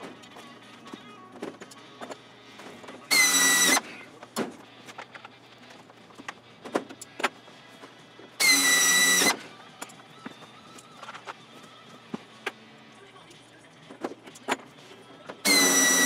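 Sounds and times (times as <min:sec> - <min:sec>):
air drill whining: 0:03.1 - 0:04.0, 0:08.4 - 0:09.6, 0:15.4 - 0:16.0.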